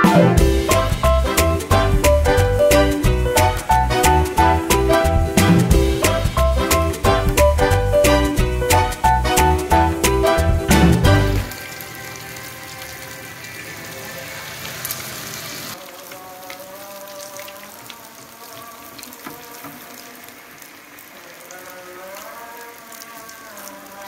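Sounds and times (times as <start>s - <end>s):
background music: 0.0s - 14.7s
frying in hot oil sizzling: 0.0s - 24.0s.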